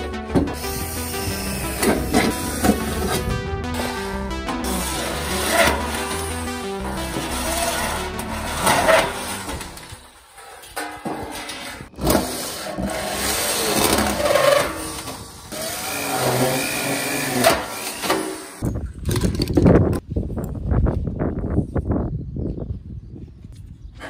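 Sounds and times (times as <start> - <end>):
electric drill cutting metal: 15.5 - 18.6.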